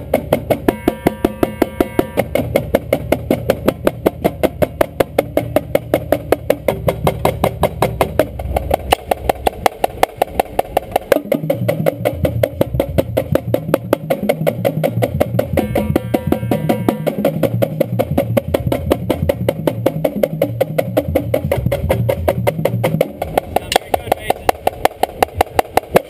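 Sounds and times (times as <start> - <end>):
low drum notes stepping in pitch: 0.0 - 24.6
marching snare drums: 0.0 - 26.0
tenor drums: 0.0 - 26.0.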